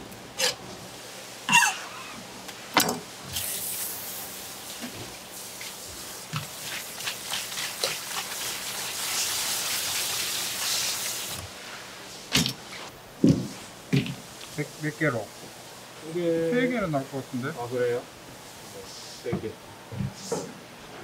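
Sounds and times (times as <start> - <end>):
tap water running: 4.6 - 11.6.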